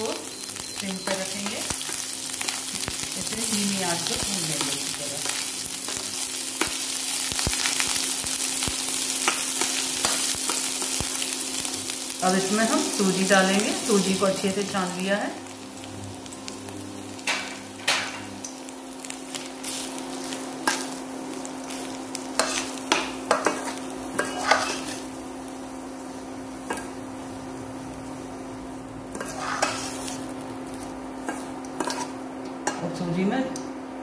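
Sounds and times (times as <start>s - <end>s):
light sizzle: 0.0s - 34.0s
spatula scraping metal pan: 29.1s - 30.2s, 31.3s - 32.1s.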